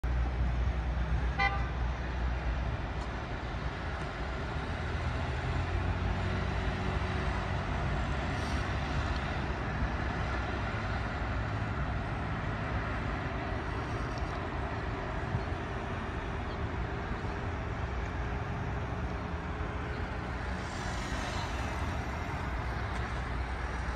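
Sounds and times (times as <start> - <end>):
cars passing with low rumble: 0.0 - 23.9.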